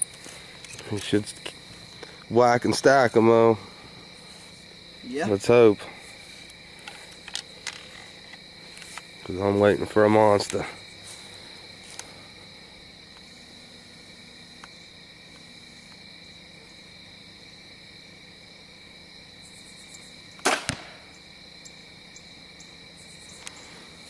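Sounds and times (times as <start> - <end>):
crickets trilling: 0.0 - 24.0
arrow hitting foam target: 20.4 - 21.0.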